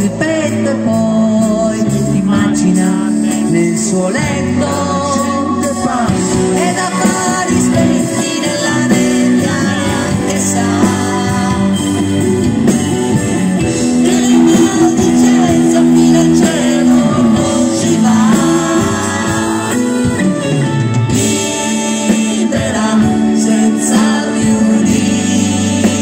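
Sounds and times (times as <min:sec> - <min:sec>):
electric bass: 0:00.0 - 0:26.0
electric guitar: 0:00.0 - 0:26.0
live pop-rock band playing: 0:00.0 - 0:26.0.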